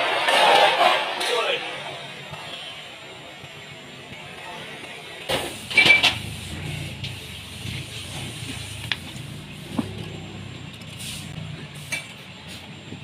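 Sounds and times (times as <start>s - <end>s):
low motor drone: 8.1s - 11.8s.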